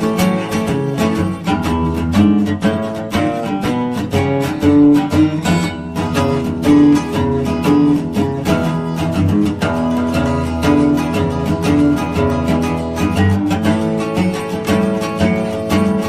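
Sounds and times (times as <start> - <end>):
acoustic guitar music: 0.0 - 16.0.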